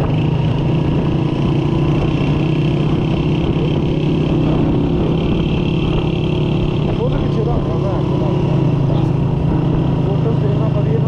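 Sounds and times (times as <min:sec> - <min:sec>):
motorcycle engine cruising: 0:00.0 - 0:11.0
road and wind noise: 0:00.0 - 0:11.0.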